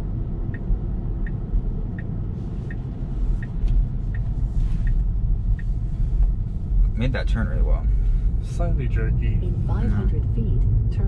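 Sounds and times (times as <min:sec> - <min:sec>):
road and tyre rumble: 0:00.0 - 0:11.0
turn-signal indicator ticking: 0:00.4 - 0:05.8.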